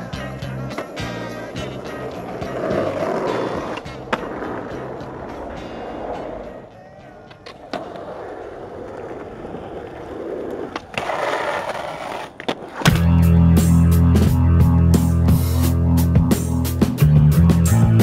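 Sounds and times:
skateboard truck grinding on concrete: 0.0 - 6.7, 7.3 - 15.4
skateboard clacks: 0.0 - 13.3
skateboard wheels rolling on asphalt: 0.0 - 13.4.

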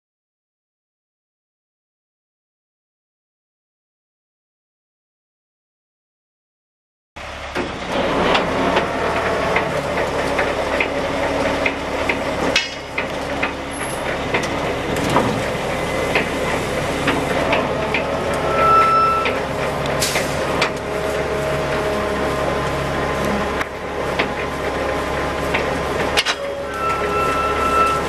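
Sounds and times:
diesel engine idling: 7.2 - 28.0
brief high tone: 18.4 - 19.4, 26.4 - 28.0.

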